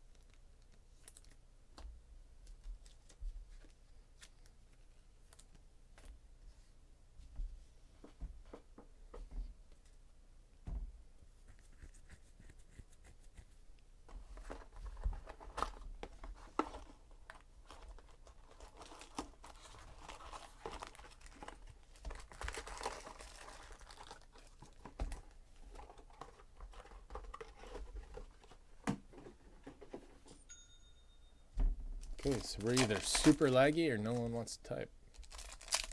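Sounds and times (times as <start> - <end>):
foil packs crinkling: 16.6 - 27.7, 32.0 - 34.4, 35.1 - 35.9.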